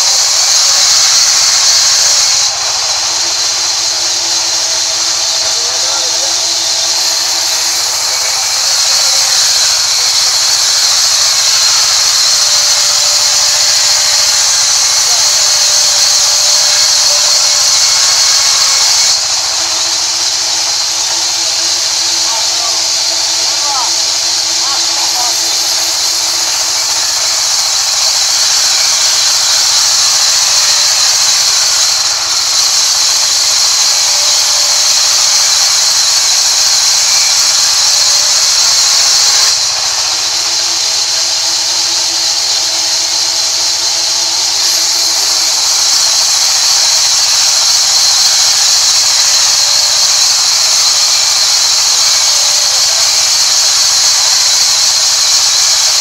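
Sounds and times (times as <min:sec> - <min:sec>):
band saw cutting wood: 0:00.0 - 0:56.0.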